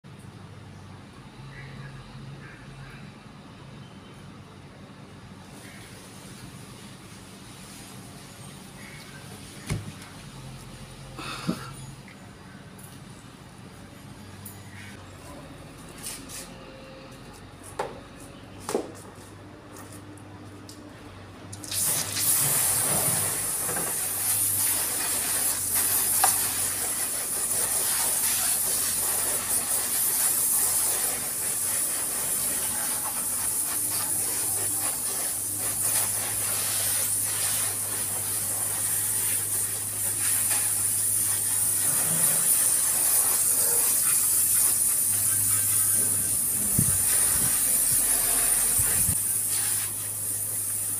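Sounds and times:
hose spraying water: 5.4s - 10.8s, 21.5s - 50.9s.

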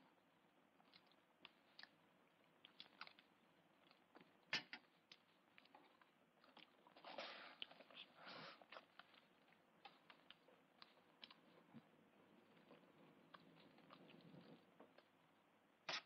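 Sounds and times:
quiet chewing: 0.0s - 16.0s.

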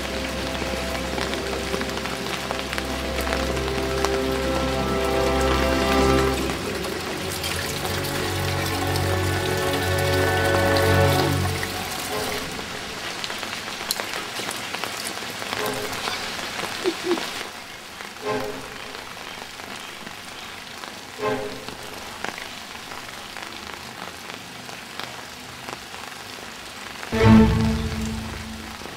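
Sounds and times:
rain falling on leaves: 0.0s - 28.9s
water running into a watering can: 5.4s - 12.9s.

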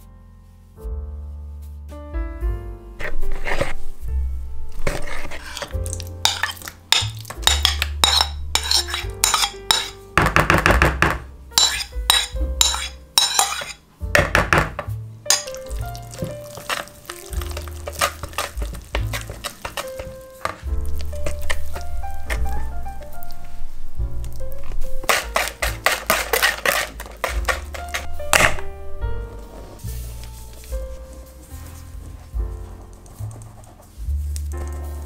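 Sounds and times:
background music with bass line: 0.0s - 3.2s, 14.0s - 35.0s
wire whisk beating batter in bowl: 4.9s - 10.0s, 11.6s - 13.8s, 15.3s - 22.6s, 25.0s - 28.1s.

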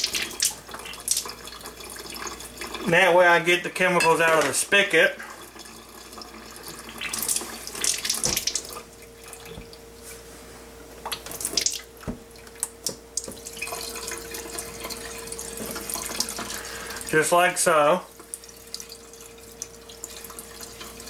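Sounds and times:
water splashing into a sink: 0.0s - 2.9s, 5.2s - 9.8s, 11.1s - 17.1s.

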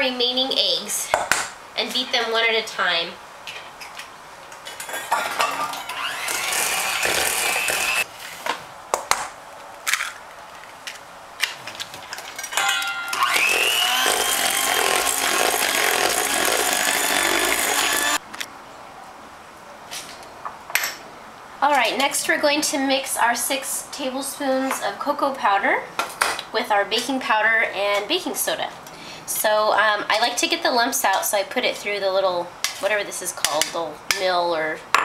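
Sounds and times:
electric hand mixer whirring: 5.7s - 8.0s, 13.1s - 18.2s.

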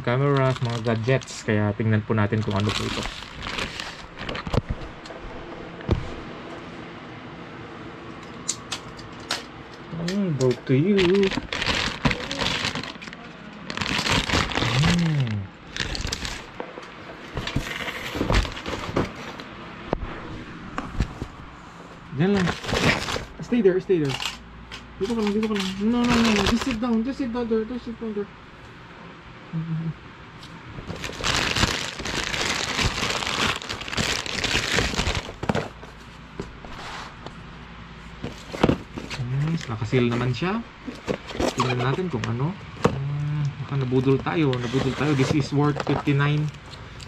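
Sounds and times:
plastic pouch crinkling: 0.2s - 1.5s, 2.3s - 4.5s, 10.8s - 16.5s, 25.0s - 26.9s, 30.8s - 35.4s.

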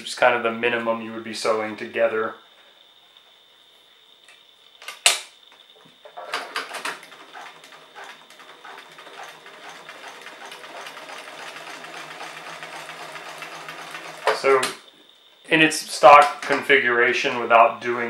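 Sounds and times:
sewing machine stitching: 6.2s - 14.7s.

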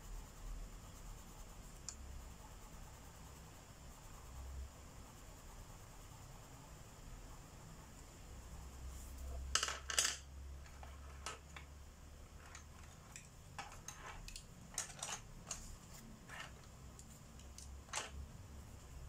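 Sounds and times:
wooden pencils clacking: 9.5s - 11.7s, 12.3s - 18.2s.

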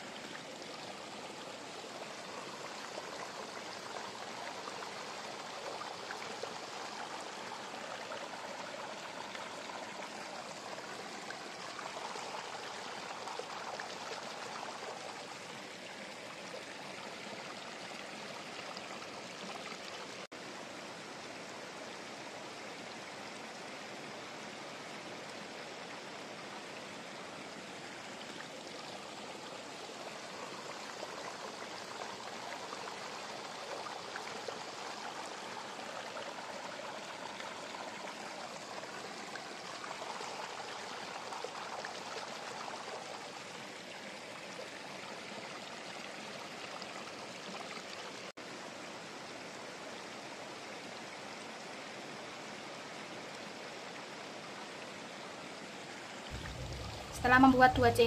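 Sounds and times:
steady rushing hiss: 56.3s - 58.0s.

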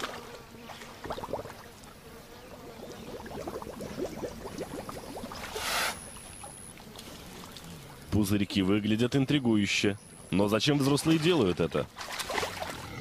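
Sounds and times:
hog blowing bubbles in mud: 0.0s - 1.7s, 2.6s - 6.2s.

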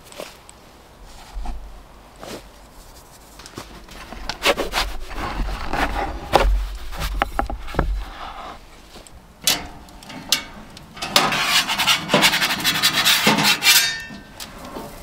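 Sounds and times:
metal peel scraping wooden board: 3.4s - 8.7s, 9.5s - 15.0s
sharp knocks and clicks: 6.3s - 8.0s.

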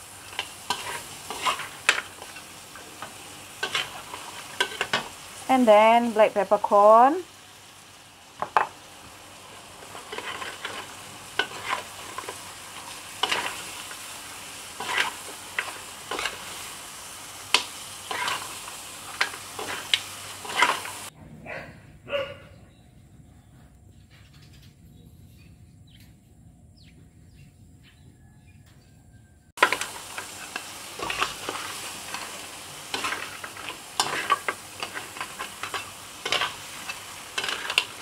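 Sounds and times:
crabs sizzling in a wok: 0.0s - 21.1s, 29.6s - 38.0s
metal spatula scraping a wok: 0.2s - 5.2s, 9.7s - 14.1s, 14.7s - 16.7s, 17.5s - 21.1s, 29.6s - 38.0s.

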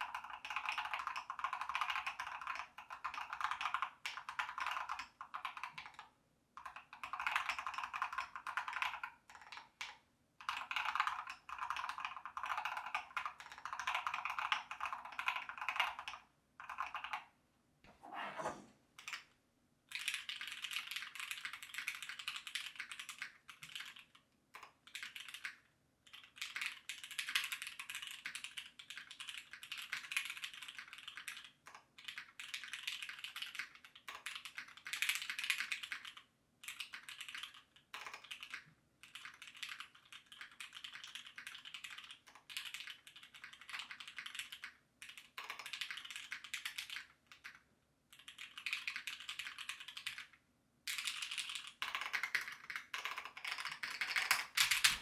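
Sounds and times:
rapid mechanical keyboard typing: 0.0s - 17.2s, 19.9s - 50.3s, 50.9s - 55.0s.

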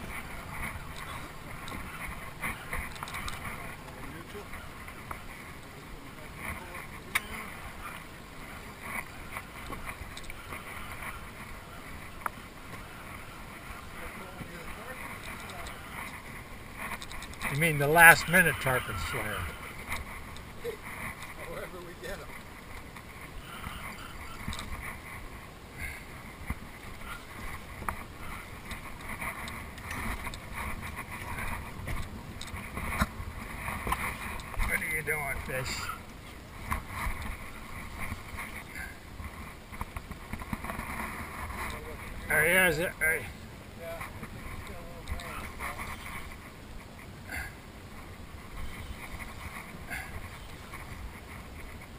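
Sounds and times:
faint ticks: 25.8s - 34.7s.

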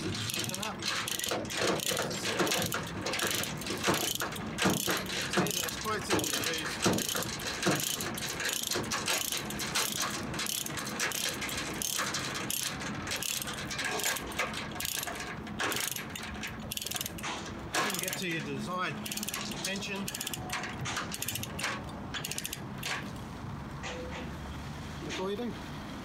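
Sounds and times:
ratchet load binder clicking: 0.0s - 18.4s, 19.0s - 23.2s.

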